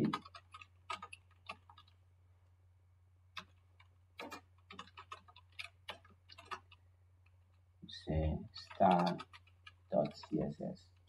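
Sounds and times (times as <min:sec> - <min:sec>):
computer keyboard keystrokes: 0:00.0 - 0:02.0, 0:03.4 - 0:06.8, 0:08.6 - 0:11.0.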